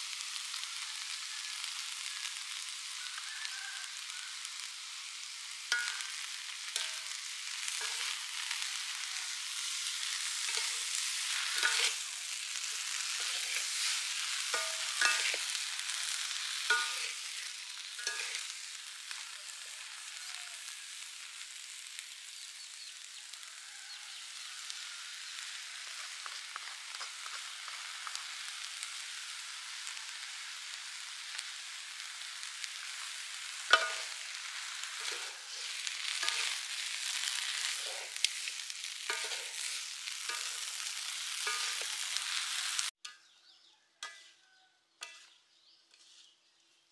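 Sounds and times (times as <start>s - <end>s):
prawns sizzling in a wok: 0.0s - 46.9s
spatulas scraping a pan: 5.7s - 18.6s, 32.8s - 43.2s, 44.0s - 44.4s, 45.0s - 46.4s.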